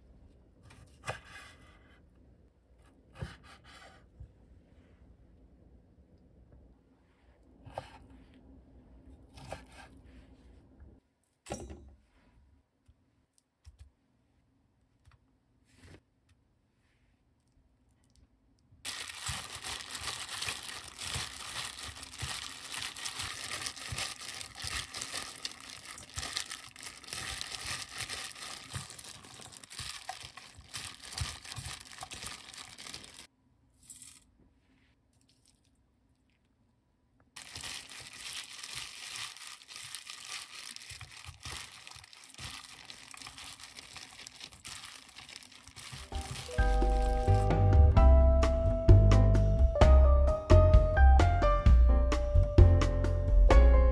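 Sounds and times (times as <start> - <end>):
plastic glove crinkling: 18.8 - 33.3, 37.4 - 47.4.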